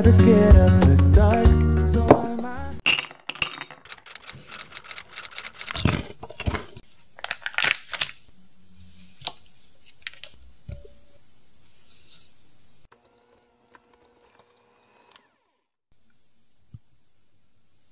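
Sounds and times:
paper wrapper crinkling: 4.3 - 8.3, 9.2 - 10.4.

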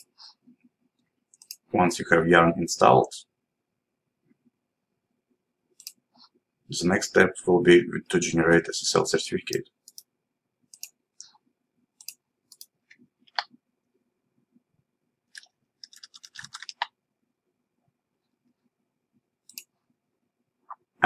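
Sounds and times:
faint mouse clicks: 12.0 - 13.6, 19.4 - 19.7
keyboard keystrokes: 15.4 - 17.0.

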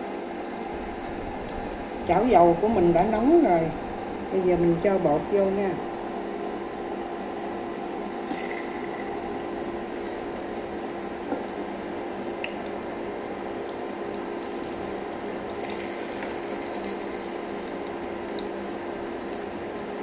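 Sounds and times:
induction cooker hum: 0.0 - 20.0
batter sizzling in hot oil: 6.8 - 20.0.

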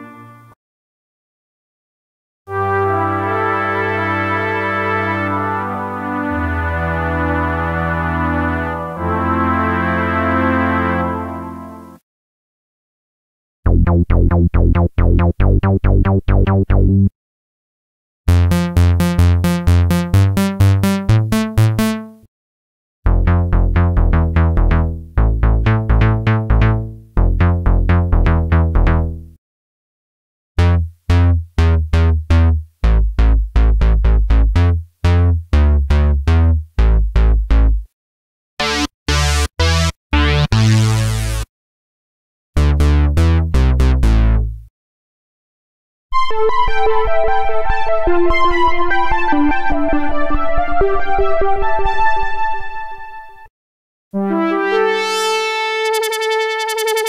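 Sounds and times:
buzzy synthesizer bass line: 13.7 - 17.1, 18.3 - 22.2, 23.1 - 29.4, 30.6 - 37.9, 38.6 - 41.5, 42.6 - 44.7, 54.2 - 57.0
plucky synthesizer bass notes: 13.7 - 17.1, 18.3 - 22.3, 23.1 - 29.4, 30.6 - 37.9, 38.6 - 41.5, 42.6 - 44.7, 54.2 - 57.0.

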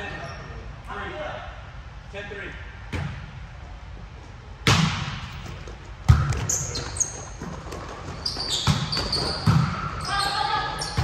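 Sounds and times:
volleyball smacks echoing: 4.6 - 5.4, 8.6 - 10.0.

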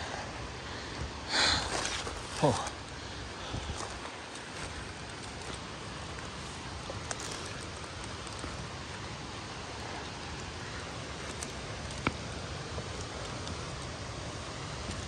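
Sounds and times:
rushing outdoor noise: 0.0 - 15.0
footsteps on dry forest litter: 3.5 - 8.6.

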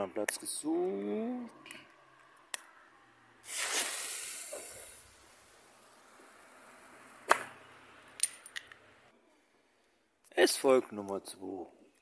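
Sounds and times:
firework fountain hissing: 3.4 - 7.3.

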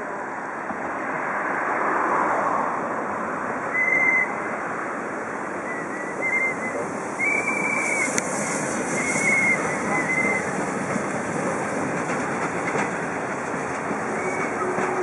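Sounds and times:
steam locomotive hissing: 5.5 - 15.0
high-pitched wheel squeals: 14.1 - 15.0.

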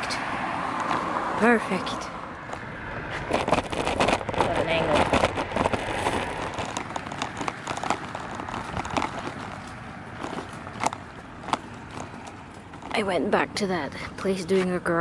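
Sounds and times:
stroller wheels rolling on concrete: 0.0 - 15.0
clicks and rattles: 3.3 - 13.0.

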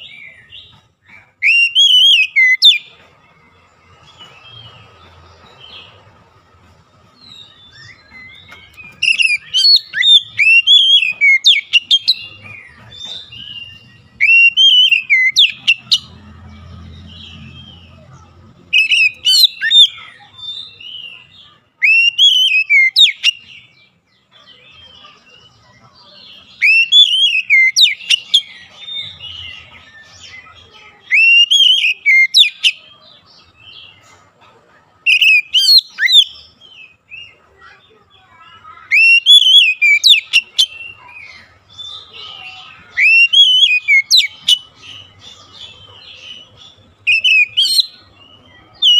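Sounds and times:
bird singing whistled phrases: 1.4 - 2.9, 7.4 - 12.4, 13.3 - 16.1, 18.7 - 21.0, 21.8 - 23.5, 26.6 - 29.4, 31.1 - 32.8, 35.1 - 36.5, 38.8 - 41.2, 42.8 - 45.1, 47.0 - 48.9.

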